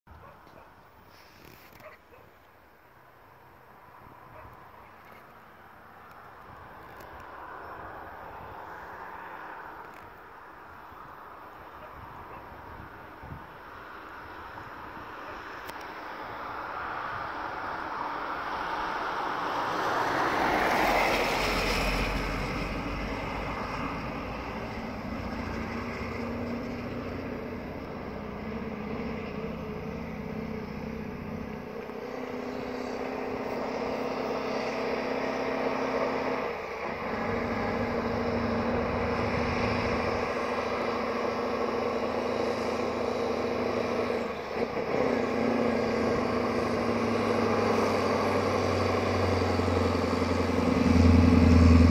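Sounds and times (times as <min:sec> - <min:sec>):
diesel truck engine labouring: 0:20.9 - 0:51.9.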